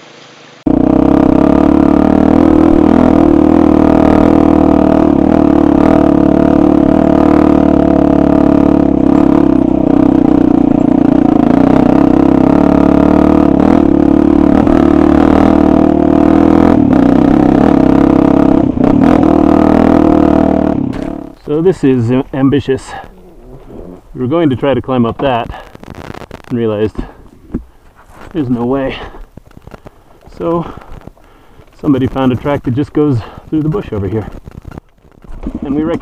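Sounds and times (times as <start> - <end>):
dirt bike engine running: 0.7 - 36.0.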